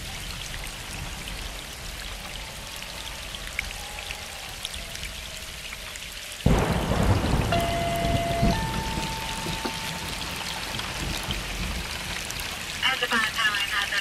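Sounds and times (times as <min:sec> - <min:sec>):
rain falling: 0:00.0 - 0:14.0
rain drop ticks: 0:03.2 - 0:14.0.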